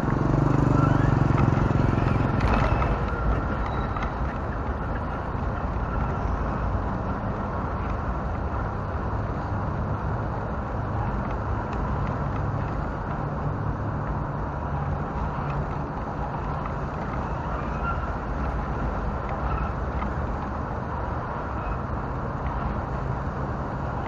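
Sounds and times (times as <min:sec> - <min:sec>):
road traffic: 0:00.0 - 0:24.0
toy car rumbling over pavement: 0:00.3 - 0:06.7.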